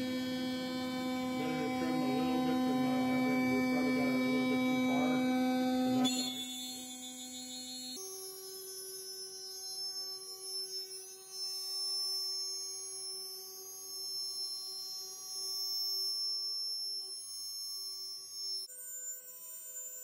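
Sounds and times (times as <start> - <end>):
router spindle whining: 0.0 - 6.1.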